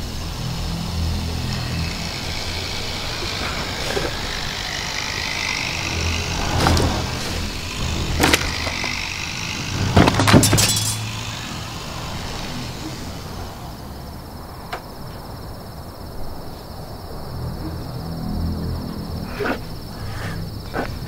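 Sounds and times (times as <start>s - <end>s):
crickets chirping: 0.0s - 21.0s
low rumble: 1.3s - 10.3s
sharp knocks and clatters: 9.6s - 11.2s.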